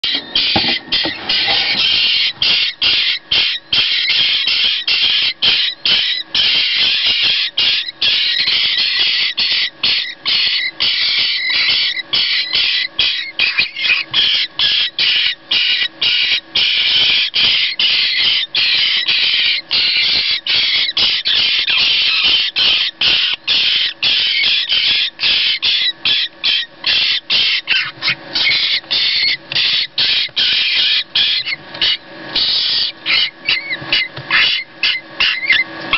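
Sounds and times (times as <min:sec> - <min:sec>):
nestlings begging calls: 0:00.0 - 0:35.9.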